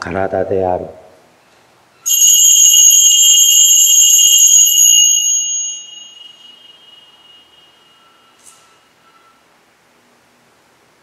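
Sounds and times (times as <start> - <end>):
bells jingling: 2.1 - 8.1.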